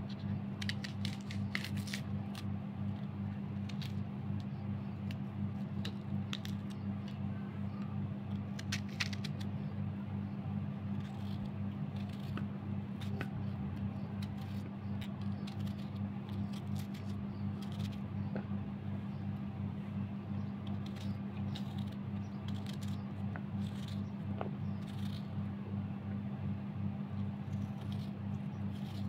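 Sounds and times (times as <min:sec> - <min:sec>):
steady low hum: 0:00.0 - 0:29.0
knife slicing onion: 0:10.8 - 0:18.4, 0:20.6 - 0:25.3, 0:27.3 - 0:29.0.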